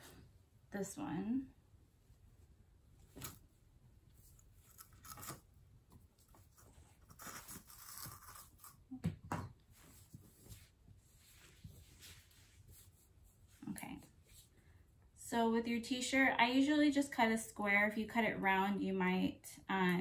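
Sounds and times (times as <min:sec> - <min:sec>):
scissors cutting fabric: 0:07.0 - 0:08.8
fabric rustling: 0:09.7 - 0:14.5.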